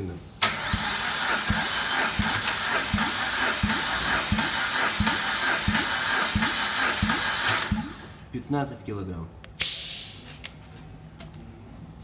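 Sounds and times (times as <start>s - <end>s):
engine cranking on starter: 0.4s - 8.2s.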